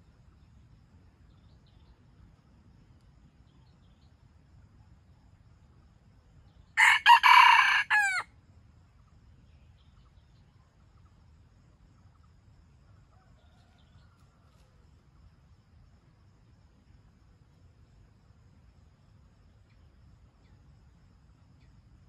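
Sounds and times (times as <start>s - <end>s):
rooster crowing: 6.8s - 8.3s.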